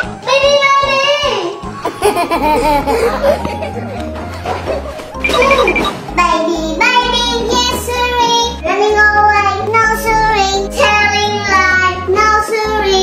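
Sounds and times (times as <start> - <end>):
backing music: 1.2 - 13.0
child singing: 6.2 - 13.0.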